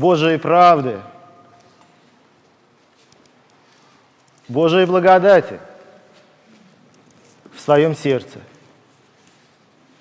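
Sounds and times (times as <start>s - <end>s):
spoken word echoing in church: 0.0s - 1.6s, 4.4s - 6.7s.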